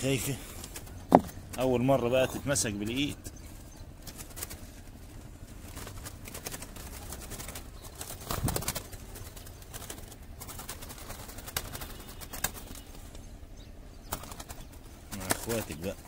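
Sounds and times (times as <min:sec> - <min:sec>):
wire cage rattling: 0:02.6 - 0:13.1.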